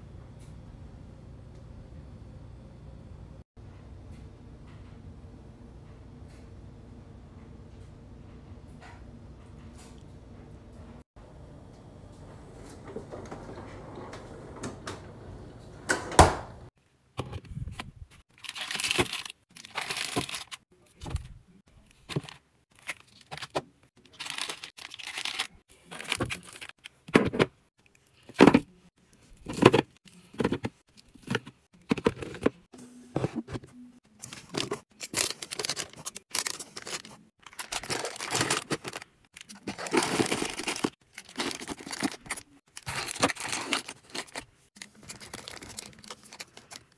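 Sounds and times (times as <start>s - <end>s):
snack wrappers rustling and crinkling: 18.3s - 20.6s, 21.9s - 26.9s, 34.2s - 46.9s.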